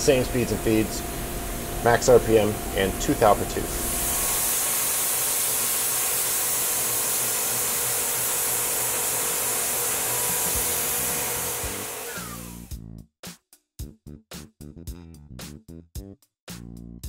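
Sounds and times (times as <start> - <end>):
milling machine spindle cutting: 4.3 - 12.7.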